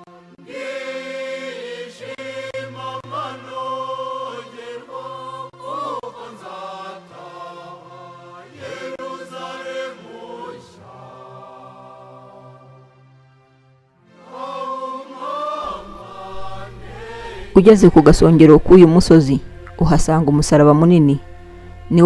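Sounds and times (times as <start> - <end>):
chant-like singing: 0.0 - 12.9, 14.1 - 19.8
steady low drone: 15.6 - 22.0.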